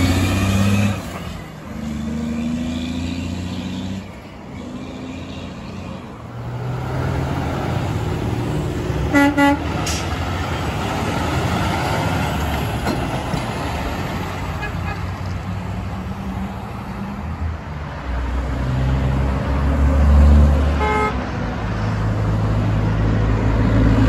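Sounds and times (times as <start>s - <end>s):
heavy diesel trucks passing: 0.0s - 24.0s
truck air horn toots: 9.1s - 10.0s, 20.8s - 21.2s.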